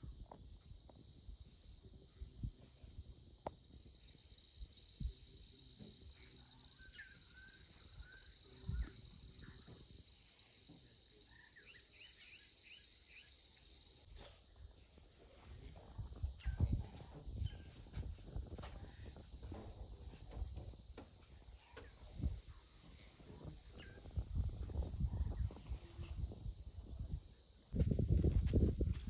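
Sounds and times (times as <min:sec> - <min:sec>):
insect chorus: 0:00.0 - 0:29.0
bird chirping: 0:06.2 - 0:09.8, 0:11.2 - 0:14.3.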